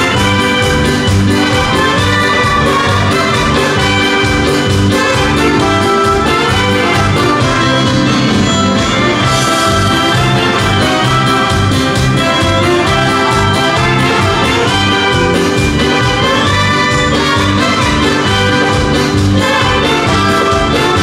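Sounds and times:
live dance band playing: 0:00.0 - 0:21.0
saxophone: 0:00.0 - 0:21.0.

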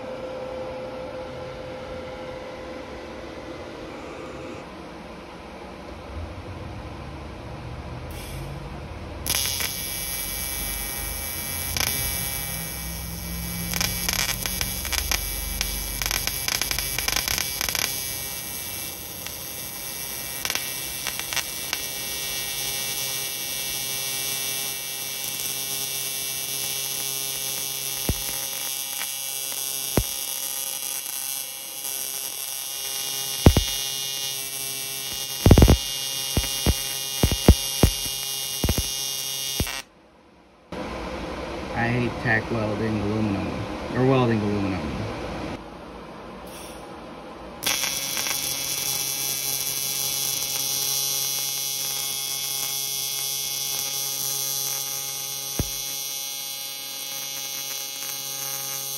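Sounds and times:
welding arc humming: 0:08.1 - 0:39.9, 0:47.6 - 0:58.9
welding arc crackling: 0:09.2 - 0:39.9, 0:47.6 - 0:58.9
sharp pops: 0:28.0 - 0:29.1, 0:33.4 - 0:33.8, 0:35.1 - 0:38.9, 0:55.6 - 0:55.8.

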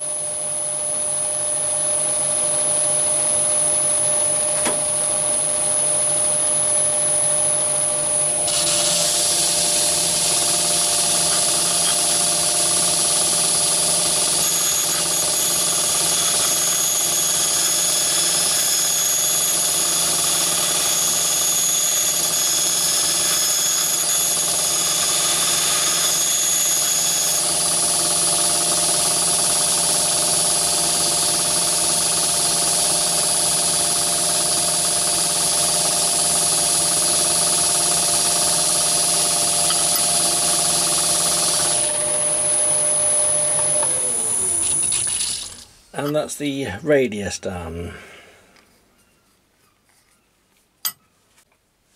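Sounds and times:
lathe whine: 0:00.0 - 0:46.2
grinding hiss: 0:08.3 - 0:12.7.

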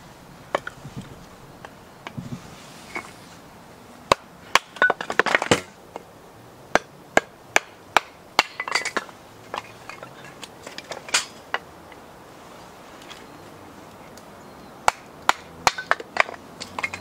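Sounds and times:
clattering: 0:15.3 - 0:17.0.

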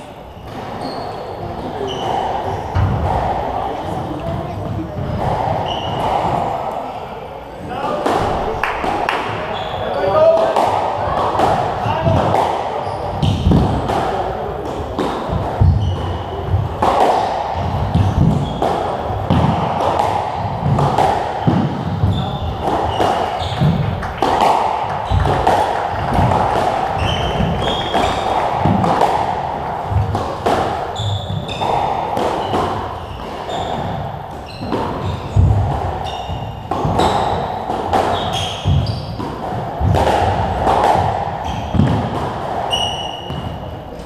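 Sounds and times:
squash ball hitting racket and walls: 0:00.0 - 0:44.0
shoes squeaking on wooden floor: 0:00.2 - 0:02.9, 0:04.3 - 0:06.5, 0:09.4 - 0:10.3, 0:15.6 - 0:16.6, 0:17.6 - 0:19.4, 0:21.5 - 0:24.1, 0:25.0 - 0:28.8, 0:30.9 - 0:39.3, 0:41.4 - 0:41.8, 0:42.7 - 0:44.0.

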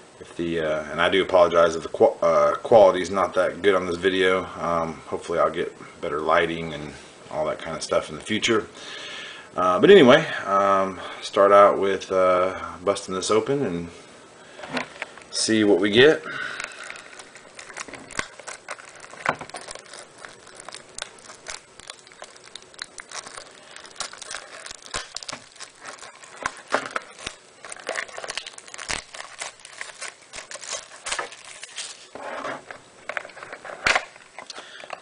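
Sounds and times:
plastic wrap crinkling and tearing: 0:14.9 - 0:35.0.

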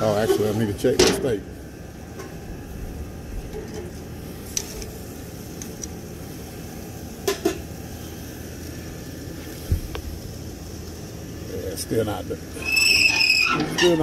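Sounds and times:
low outdoor rumble: 0:00.0 - 0:14.0
metallic clinks at grill: 0:07.2 - 0:07.8.

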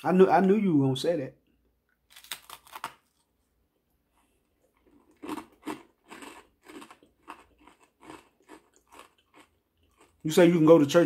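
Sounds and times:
crunching bites of crusty food: 0:02.0 - 0:03.5, 0:04.6 - 0:11.0
steady chewing: 0:04.1 - 0:10.7.

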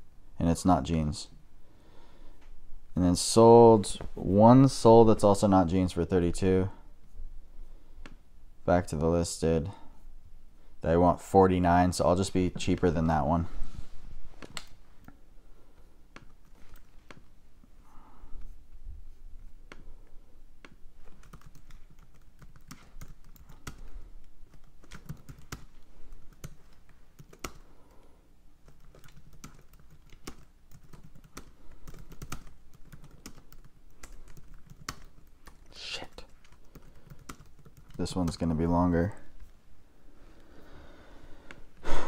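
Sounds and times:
computer keyboard typing: 0:20.6 - 0:27.7, 0:28.6 - 0:38.5.

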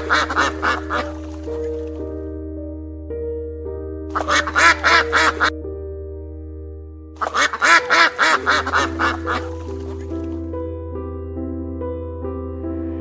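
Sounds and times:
rapid duck quacking: 0:00.0 - 0:01.7, 0:04.1 - 0:05.5, 0:07.2 - 0:10.2
background music with held notes: 0:00.0 - 0:13.0.

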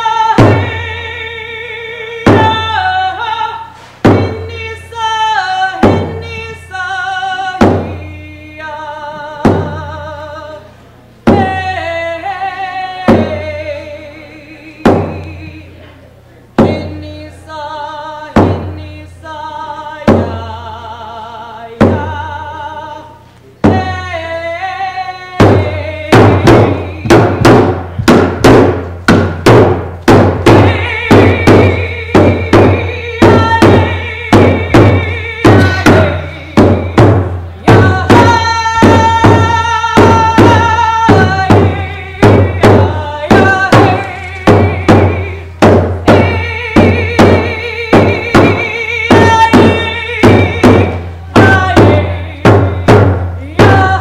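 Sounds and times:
frame drum beats: 0:00.0 - 0:01.4, 0:02.1 - 0:08.2, 0:09.1 - 0:10.2, 0:11.3 - 0:13.9, 0:14.8 - 0:15.6, 0:16.6 - 0:17.1, 0:18.3 - 0:18.9, 0:20.1 - 0:20.4, 0:21.8 - 0:22.3, 0:23.6 - 0:24.3, 0:25.3 - 0:54.0
woman singing: 0:00.0 - 0:15.9, 0:16.6 - 0:28.4, 0:30.2 - 0:54.0.

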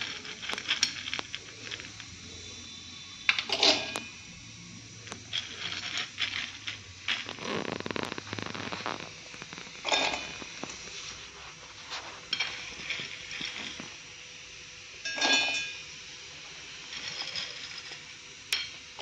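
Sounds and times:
pepper rattling in metal jar: 0:00.0 - 0:02.2, 0:05.2 - 0:10.5.

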